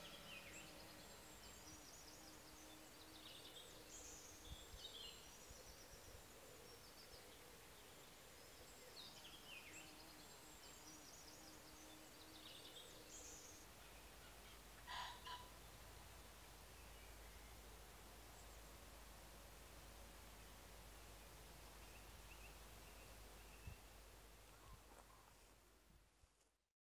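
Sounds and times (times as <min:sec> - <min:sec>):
small birds chirping and trilling: 0:00.0 - 0:18.8.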